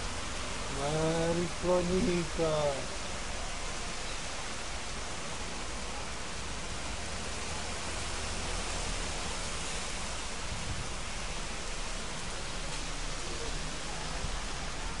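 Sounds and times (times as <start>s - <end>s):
floodwater running: 0.0s - 3.2s
heavy rain pouring: 0.0s - 15.0s.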